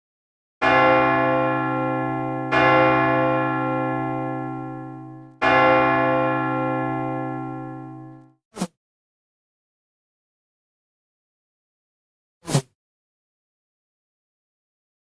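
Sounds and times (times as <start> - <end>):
large bell ringing: 0.6 - 8.3.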